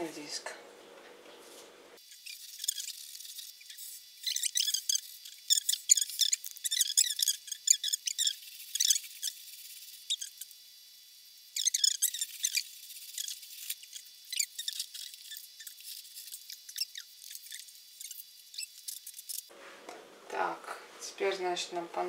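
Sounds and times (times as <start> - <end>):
pad wiping metal squeakily: 2.2 - 10.5, 11.6 - 19.5.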